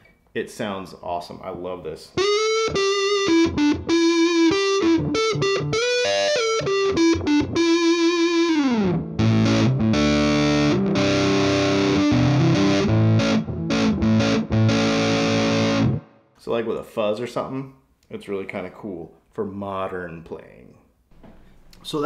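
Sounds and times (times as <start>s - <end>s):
distorted electric guitar: 2.2s - 16.1s.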